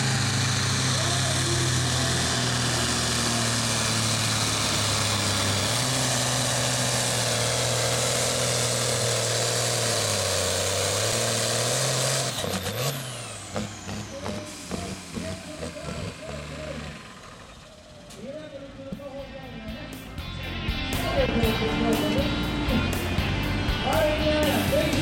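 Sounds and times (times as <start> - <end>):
high whine winding down: 0.0 - 18.1
tractor engine running under load: 0.0 - 19.6.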